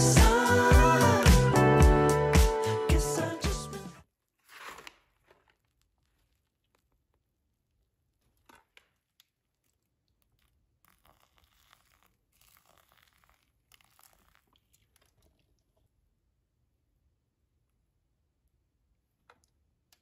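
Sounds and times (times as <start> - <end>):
water pouring from kettle: 10.8 - 15.9.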